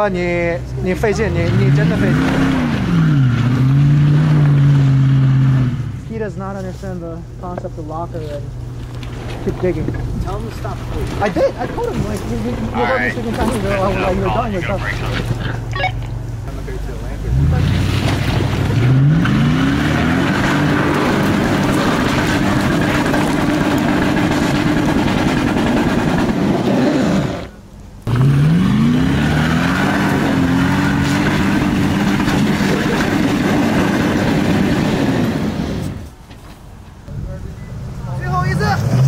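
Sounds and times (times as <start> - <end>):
engine revving hard: 0.9 - 6.0, 17.2 - 36.0, 38.3 - 39.0
wheels spinning in loose rock: 19.8 - 27.6, 29.8 - 36.3.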